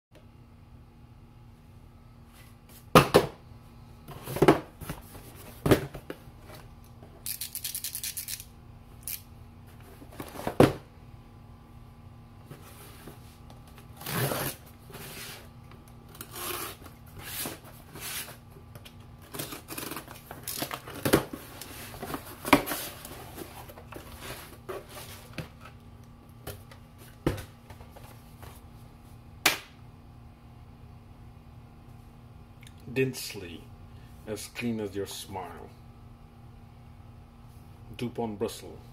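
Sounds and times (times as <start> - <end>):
cardboard scraping and tearing: 14.0 - 15.5.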